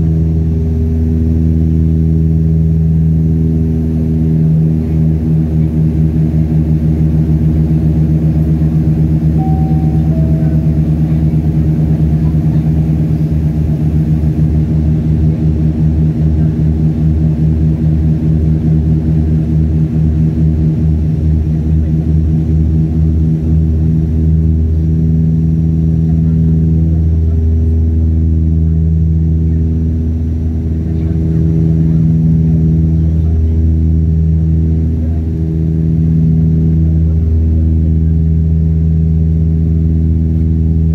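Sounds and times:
propeller engine drone: 0:00.0 - 0:40.9
two-note falling chime: 0:09.4 - 0:11.6.

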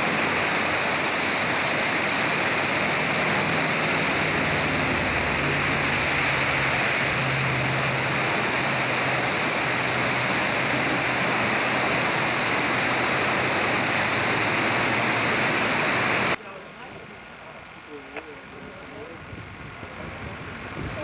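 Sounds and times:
water rushing through rapids: 0:00.0 - 0:16.4.

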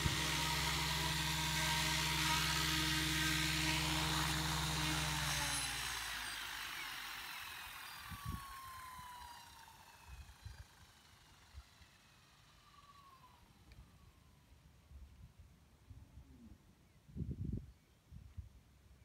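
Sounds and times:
thin falling whine: 0:00.0 - 0:13.8
rotor whirring hum: 0:00.0 - 0:14.2.

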